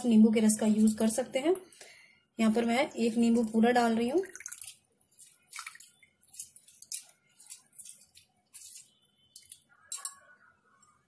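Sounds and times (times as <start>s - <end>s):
juice dripping into water: 4.0s - 11.0s.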